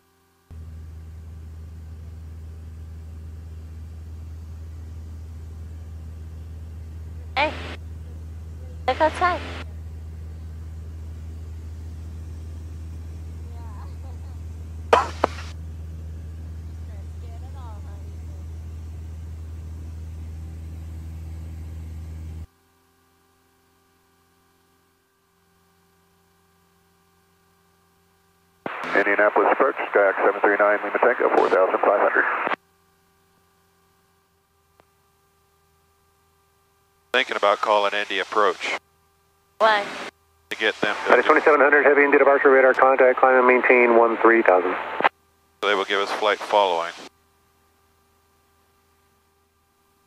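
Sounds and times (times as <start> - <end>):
propeller plane engine drone: 0.0 - 34.5, 37.1 - 38.8, 39.6 - 47.1
faint steady hum: 0.0 - 50.0.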